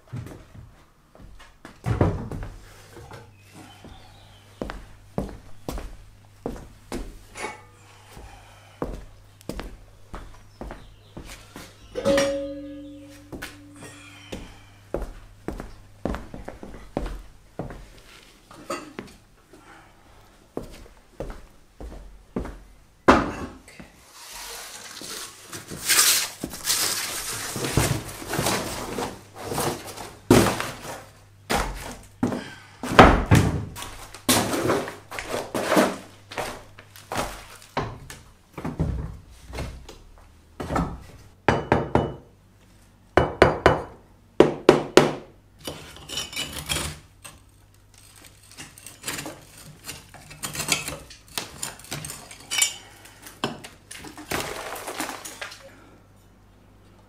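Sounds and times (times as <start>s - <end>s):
cardboard sheets scraping: 24.1s - 30.2s.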